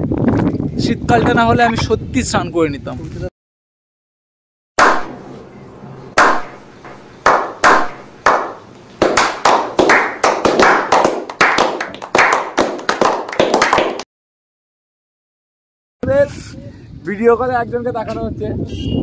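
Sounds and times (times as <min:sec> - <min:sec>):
people clapping: 0:06.2 - 0:06.5, 0:07.2 - 0:14.1.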